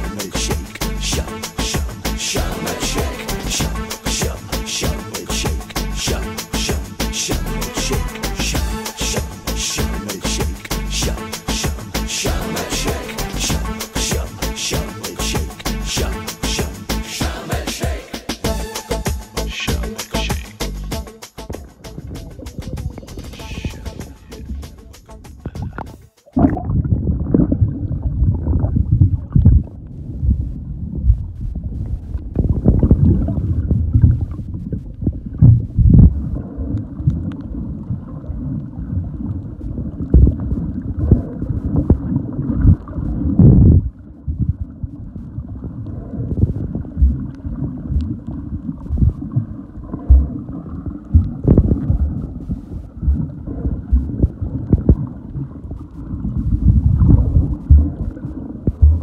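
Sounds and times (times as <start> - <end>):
underwater rush of water: 0.0 - 18.4, 31.8 - 43.8, 44.6 - 59.0.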